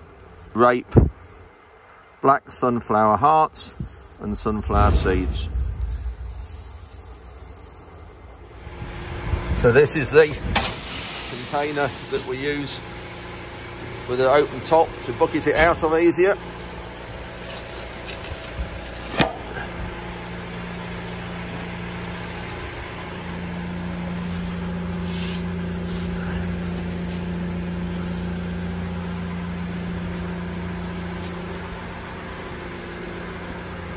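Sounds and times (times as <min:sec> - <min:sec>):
grain machinery humming: 0:03.5 - 0:33.9.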